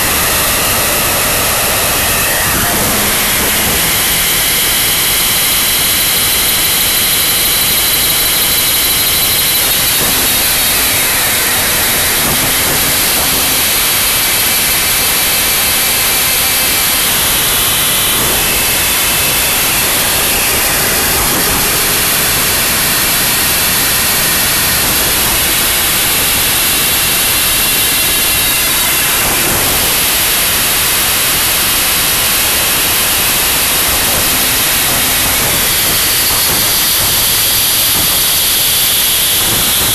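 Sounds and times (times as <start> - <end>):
faint high tones: 0.0 - 6.2
wall of static noise: 0.0 - 39.9.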